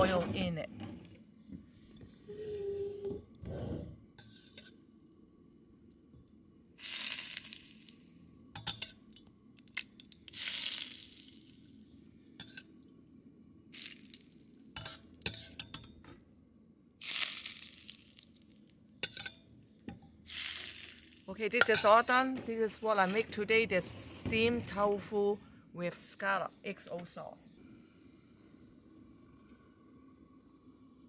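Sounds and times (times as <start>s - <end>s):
hot oil sizzling: 6.8s - 11.8s, 13.7s - 15.9s, 17.0s - 19.3s, 20.2s - 21.9s.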